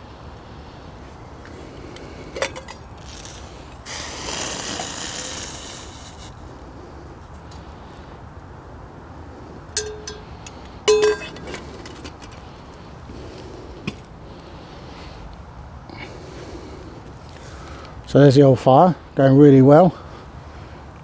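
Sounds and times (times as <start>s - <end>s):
tea cup clinking against metal: 2.4s - 2.8s, 9.8s - 12.0s.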